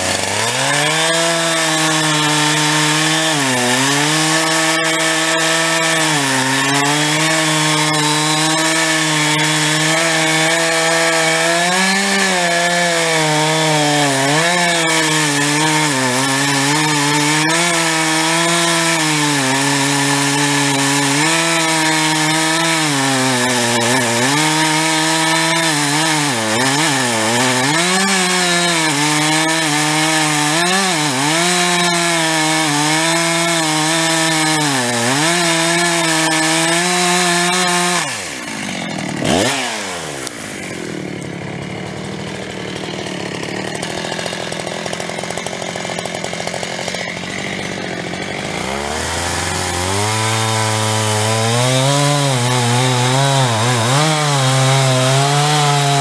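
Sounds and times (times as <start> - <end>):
chainsaw cutting into tree: 0.0 - 56.0.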